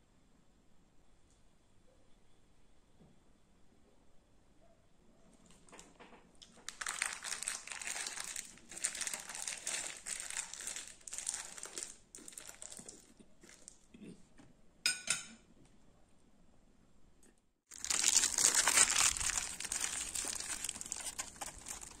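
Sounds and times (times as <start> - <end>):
plastic crinkling and rustling: 5.5 - 13.8, 17.7 - 22.0
sharp crackle: 17.7 - 22.0.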